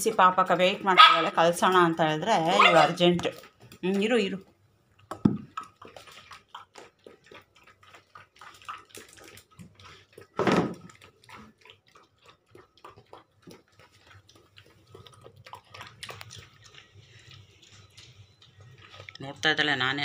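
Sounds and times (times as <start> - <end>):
puppy lapping and chewing: 0.0 - 20.0.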